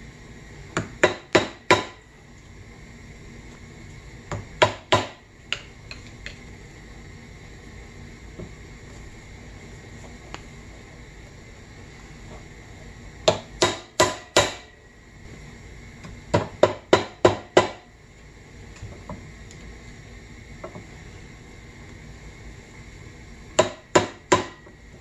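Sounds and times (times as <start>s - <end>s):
hammer striking metal on anvil: 13.3s - 14.7s.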